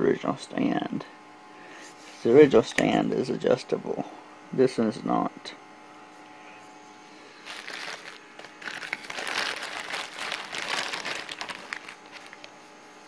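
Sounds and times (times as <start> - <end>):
plastic packaging crinkling: 7.4 - 12.6.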